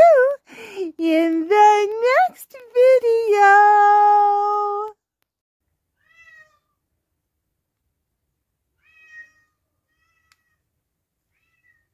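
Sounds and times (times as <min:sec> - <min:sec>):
cat meowing: 0:06.0 - 0:06.7, 0:08.8 - 0:10.6.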